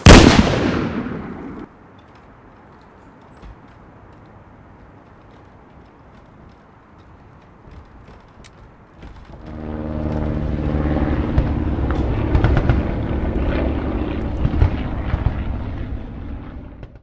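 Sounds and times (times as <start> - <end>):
engine running: 9.0 - 17.0.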